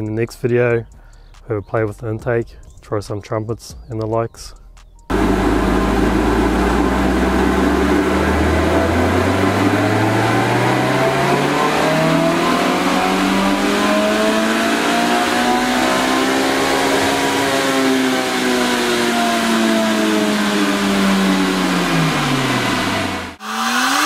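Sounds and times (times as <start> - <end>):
engine revving on a dyno: 5.1 - 24.0.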